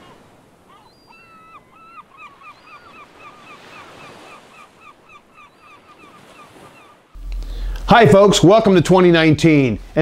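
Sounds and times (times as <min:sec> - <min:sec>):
gull calling: 0:00.0 - 0:07.7
surf hissing: 0:07.2 - 0:10.0.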